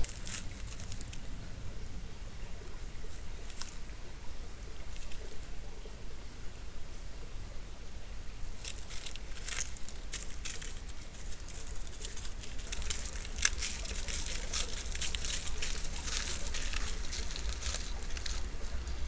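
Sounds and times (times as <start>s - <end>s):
dry leaves rustling and crackling: 0.0s - 1.3s, 2.4s - 5.6s, 8.4s - 19.0s.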